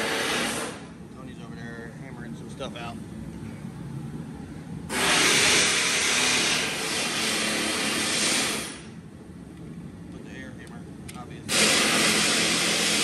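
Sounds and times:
air blow gun hissing: 0:00.0 - 0:00.9, 0:04.9 - 0:09.0, 0:11.5 - 0:13.0.

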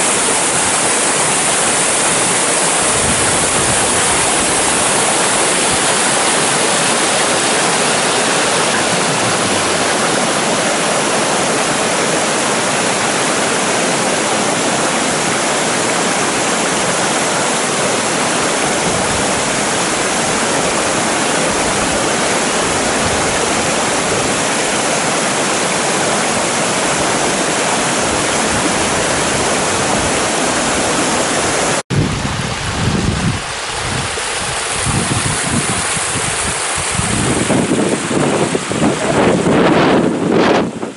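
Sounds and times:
wind buffeting microphone: 0:00.0 - 0:11.9, 0:18.3 - 0:24.9, 0:26.8 - 0:40.9
floodwater rushing over rocks: 0:00.0 - 0:40.9
shallow water runoff: 0:00.0 - 0:40.9.

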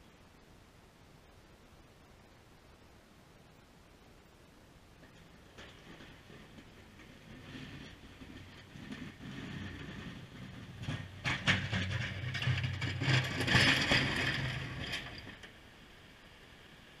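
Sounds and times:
plow blade scraping and rattling: 0:05.0 - 0:17.0.

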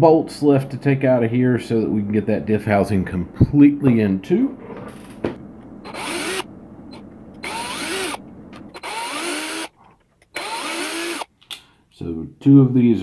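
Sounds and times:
cordless drill running: 0:05.8 - 0:11.3.

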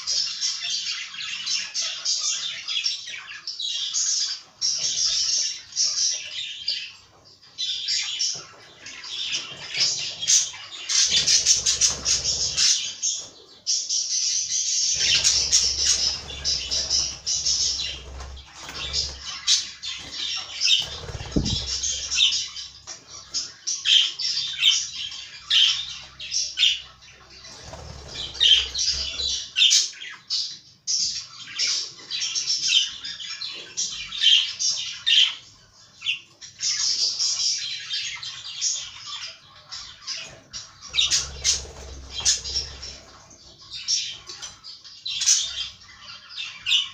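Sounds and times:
budgerigars chattering: 0:07.6 - 0:30.5, 0:36.0 - 0:46.9.

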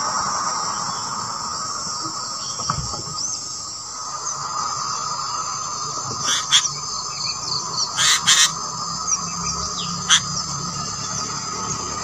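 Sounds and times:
insect drone: 0:00.0 - 0:12.0
nestlings harsh begging calls: 0:05.7 - 0:11.2.

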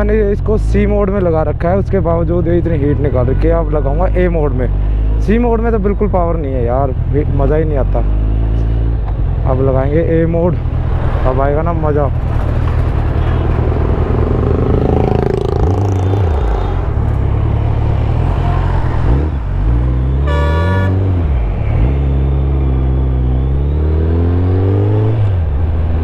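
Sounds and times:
motorcycle engine accelerating: 0:12.1 - 0:26.0
vehicle horn toot: 0:20.2 - 0:21.1.

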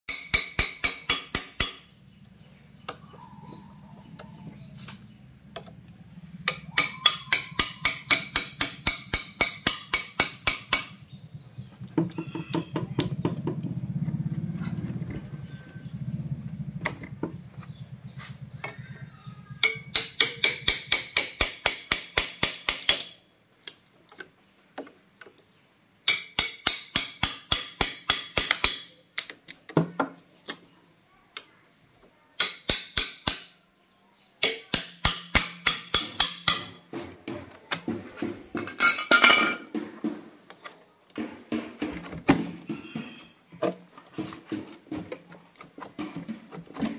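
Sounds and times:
hammer beating on metal rod: 0:00.1 - 0:01.9, 0:06.4 - 0:11.0, 0:19.6 - 0:23.1, 0:26.1 - 0:28.9, 0:32.4 - 0:33.6, 0:34.4 - 0:36.9.

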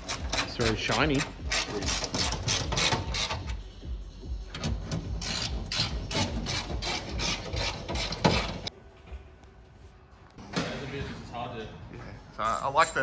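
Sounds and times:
scraping strokes: 0:05.2 - 0:08.7.

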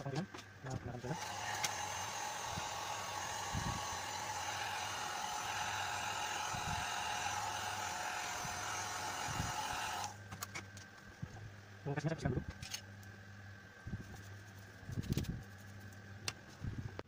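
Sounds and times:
hair dryer running: 0:01.1 - 0:10.2.

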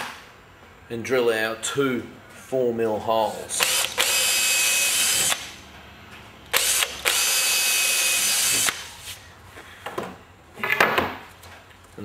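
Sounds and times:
cordless drill boring wood: 0:03.6 - 0:05.4, 0:06.6 - 0:08.8.

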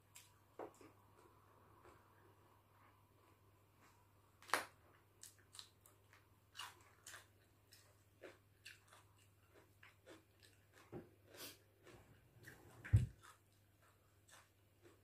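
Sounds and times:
soft chewing clicks: 0:00.1 - 0:04.1, 0:04.8 - 0:15.0
person chewing crunchy vegetables: 0:04.8 - 0:15.0.

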